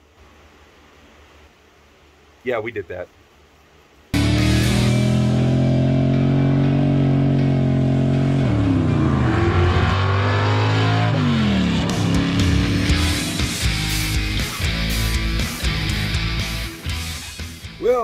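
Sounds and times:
car engine revving: 4.2 - 16.9.

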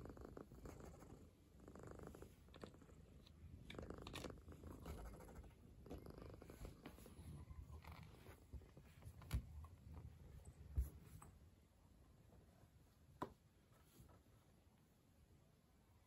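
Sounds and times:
cat purring: 0.0 - 11.0.

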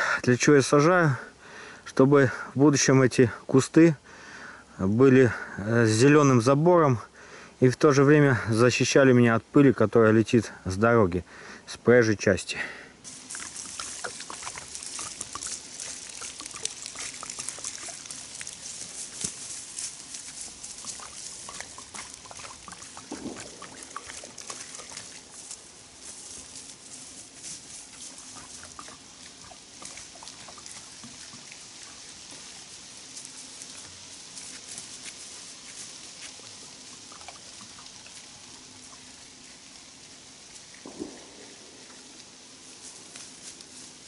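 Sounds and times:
footsteps through tall grass: 13.0 - 44.0.

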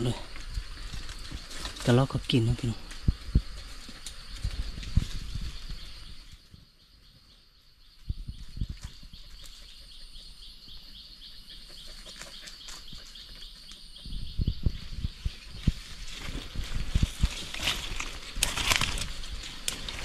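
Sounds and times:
footsteps through undergrowth: 0.0 - 6.6, 12.1 - 20.0.

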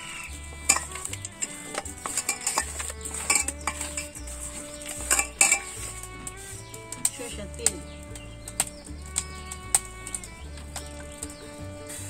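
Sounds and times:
fish clinking in metal bowl: 0.0 - 4.2, 4.8 - 6.4
background music with low bass: 0.0 - 12.0.

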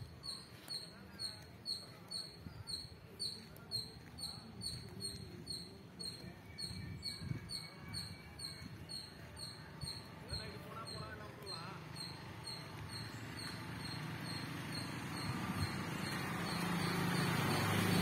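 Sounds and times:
insect chirping: 11.9 - 18.0.

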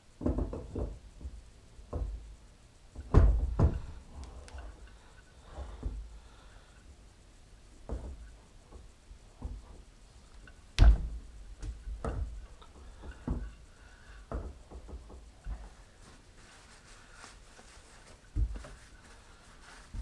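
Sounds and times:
dull metal clunks: 2.9 - 6.1, 7.8 - 15.8.

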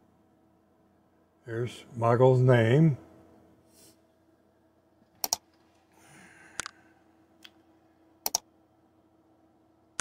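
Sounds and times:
mouse clicks: 5.2 - 5.4, 8.2 - 8.4.

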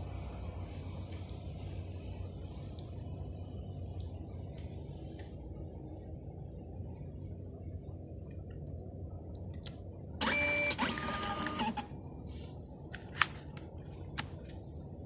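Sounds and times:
label printer whirring: 10.2 - 11.9.

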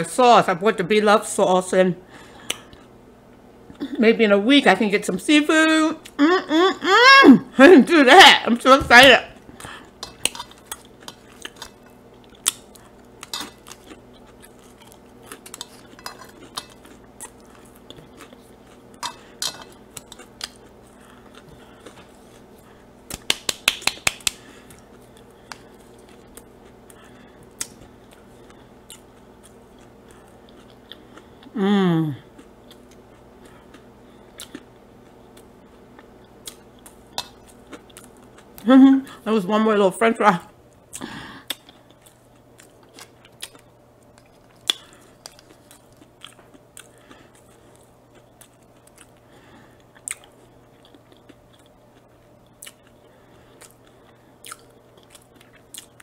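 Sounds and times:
person humming mmm: 6.0 - 7.6, 31.4 - 32.4.

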